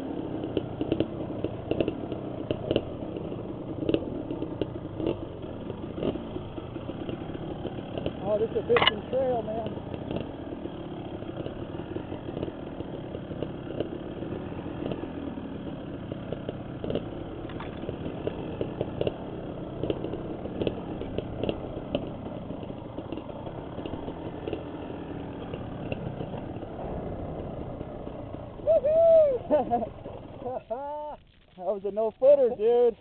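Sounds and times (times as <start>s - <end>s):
dirt bike engine at low revs: 0.0s - 33.0s
clicks and knocks from rocks: 17.4s - 17.8s.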